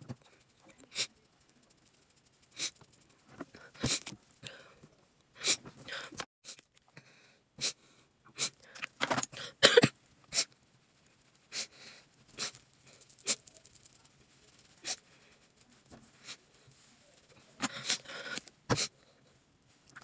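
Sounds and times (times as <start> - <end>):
person sniffling and sobbing: 3.5 - 4.8, 5.4 - 9.7, 10.3 - 10.5, 11.5 - 13.5, 17.5 - 19.3.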